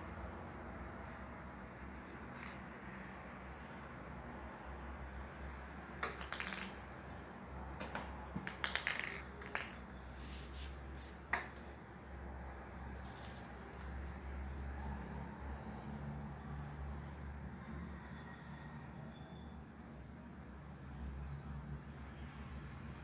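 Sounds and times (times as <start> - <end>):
cat toy rattling: 1.9 - 2.9, 5.8 - 11.8, 12.7 - 14.6.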